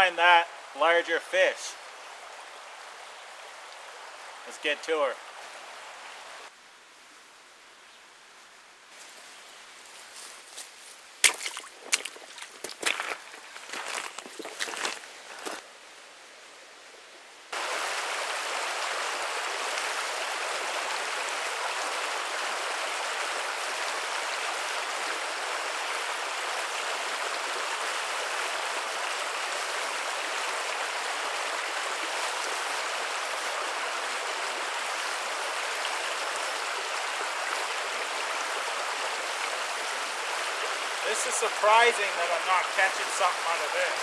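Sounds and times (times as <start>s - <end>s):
brook rushing over logs: 10.1s - 15.6s.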